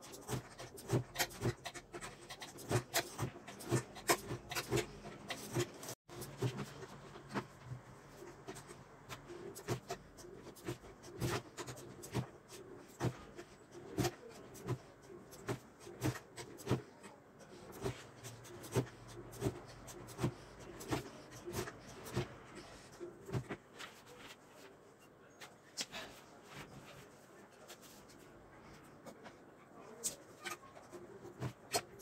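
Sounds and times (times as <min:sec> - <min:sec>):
blade chopping dough on wood: 0:00.0 - 0:07.4, 0:17.7 - 0:22.5.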